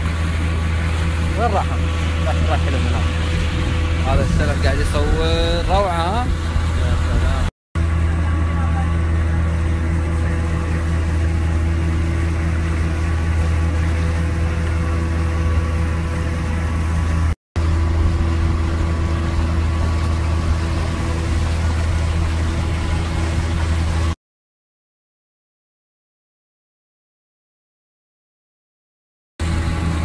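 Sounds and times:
boat engine humming: 0.0 - 24.2, 29.4 - 30.0.

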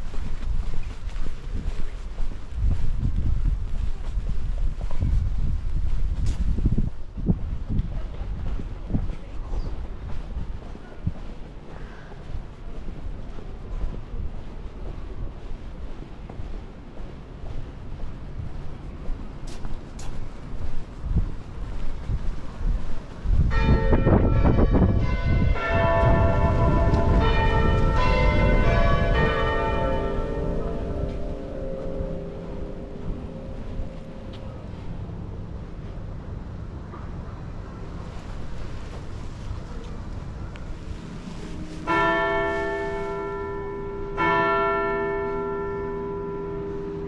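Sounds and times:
wind rumble on microphone: 0.0 - 43.4
church bells ringing: 23.5 - 34.9, 40.7 - 47.0.

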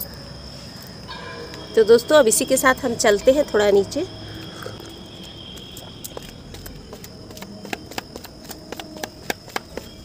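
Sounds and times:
footsteps on concrete stairs: 5.8 - 10.0.

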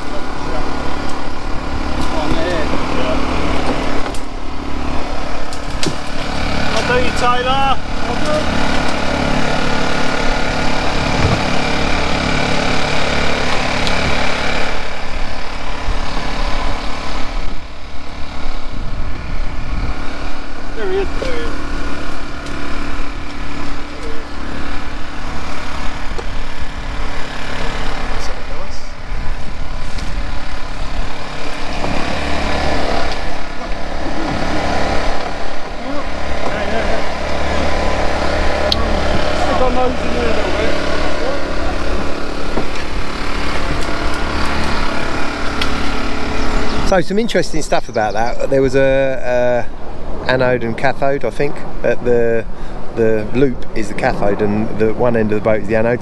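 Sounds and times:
small petrol generator running: 0.0 - 56.0
faint voices: 23.6 - 24.8, 33.4 - 45.5.

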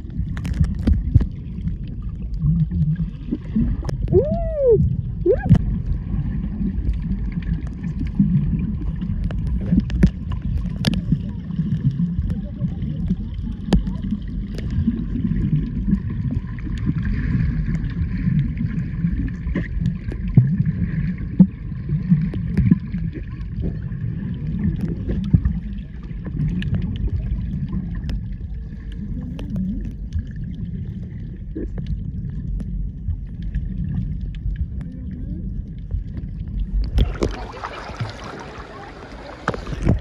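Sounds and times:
sharp clicks and crackles: 0.0 - 2.8, 6.8 - 17.0, 24.5 - 37.4
underwater rumble of moving water: 0.0 - 40.0.

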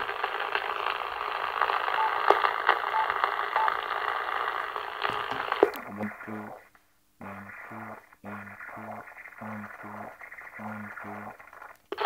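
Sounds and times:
radio static hiss: 0.0 - 12.0
sharp radio crackles: 0.0 - 12.0
short high beeps: 2.0 - 2.2.

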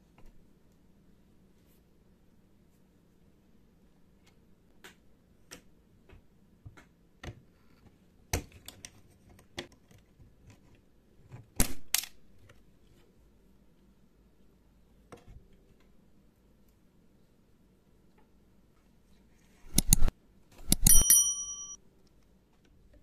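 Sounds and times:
tweezers clicking on plastic: 19.7 - 21.1.

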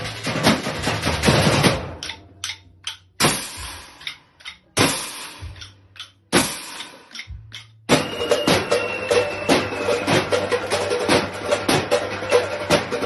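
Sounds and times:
fast drum strikes: 0.0 - 13.0
loud drum hits ringing out: 7.9 - 13.0.

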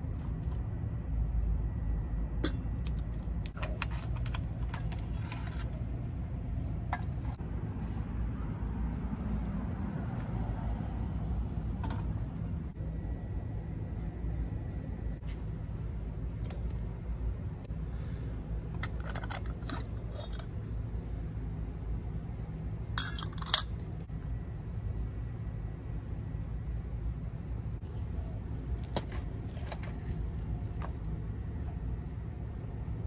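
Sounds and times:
low background rumble: 0.0 - 33.0
metal pot and lid clattering: 23.0 - 23.7.

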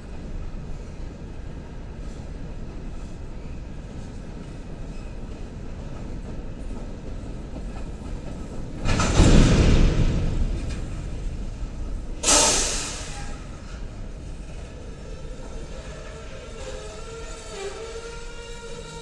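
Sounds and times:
freight train rumbling past: 0.0 - 19.0
loud train clatter: 0.0 - 19.0.

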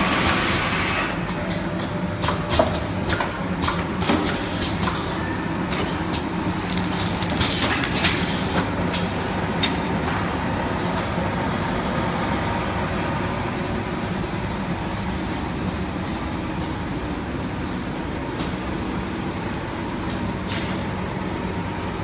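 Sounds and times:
packing machinery humming: 4.8 - 10.3.

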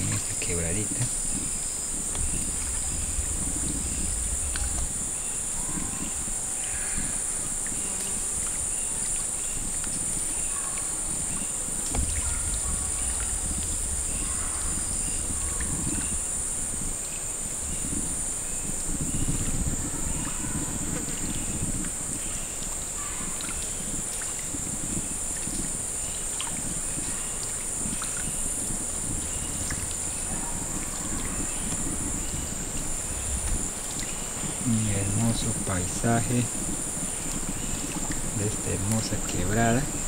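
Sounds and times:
faint chirps and ticks: 0.0 - 40.0
insect chorus drone: 0.0 - 40.0
low rumble: 0.9 - 7.7, 11.8 - 19.9, 26.8 - 39.4.

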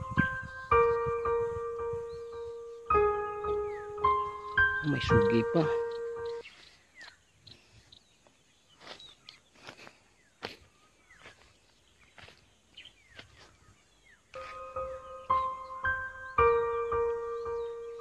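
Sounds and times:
keyboard background music: 0.0 - 6.4, 14.3 - 18.0
bird chirps: 0.0 - 18.0.

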